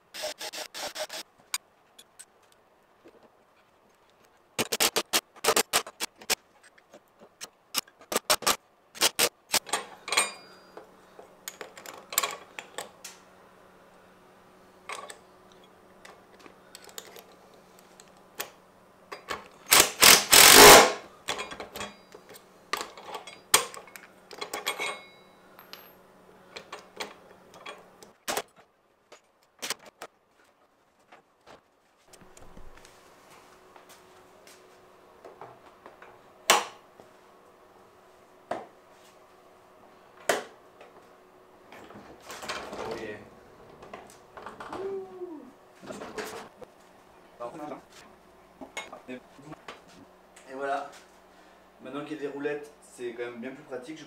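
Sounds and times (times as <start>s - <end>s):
clinks of bolts and spanner: 9.6s - 10.7s, 21.3s - 26.0s
metal rattling burst: 19.7s - 21.0s.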